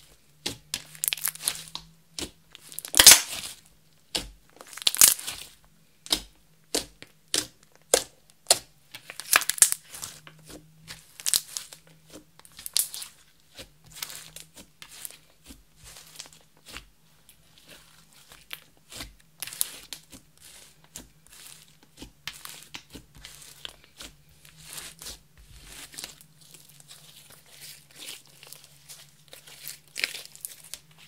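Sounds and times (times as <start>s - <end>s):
slime being kneaded by hand: 0.0s - 31.0s
sticky slime pops and squelches: 0.4s - 3.5s.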